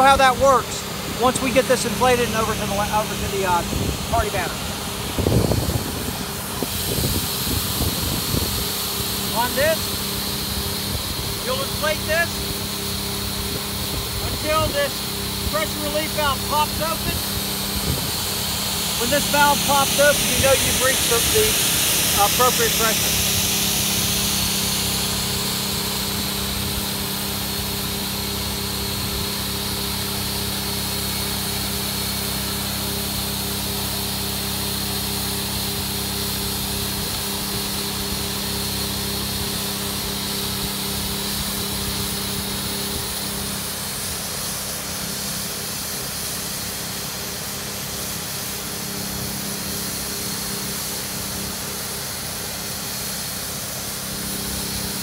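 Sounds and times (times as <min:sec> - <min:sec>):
inflation pump motor hum: 0:00.0 - 0:55.0
rushing air: 0:01.9 - 0:26.9.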